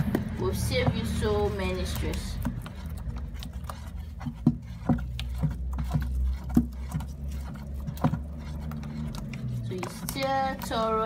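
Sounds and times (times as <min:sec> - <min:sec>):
stick knocking and scraping bowl: 0:00.0 - 0:11.0.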